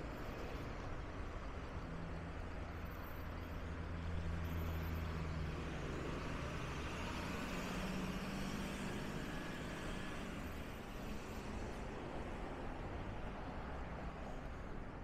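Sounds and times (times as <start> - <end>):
street traffic: 0.0 - 15.0.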